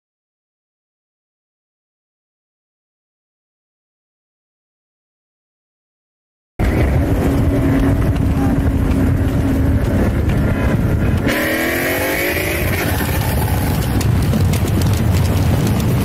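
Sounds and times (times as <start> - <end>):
car engine revving: 6.6 - 16.0
heavy road rumble: 6.6 - 16.0.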